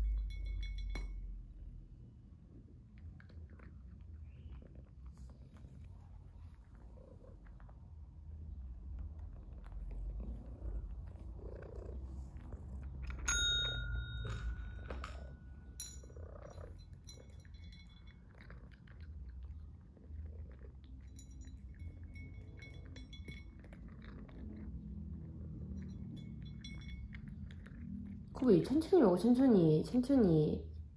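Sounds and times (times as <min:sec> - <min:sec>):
food clinking against bowl: 0:00.0 - 0:01.4, 0:13.1 - 0:19.0, 0:21.0 - 0:24.4, 0:25.7 - 0:28.2
cat purring: 0:02.5 - 0:28.5
call bell ding: 0:13.2 - 0:16.3.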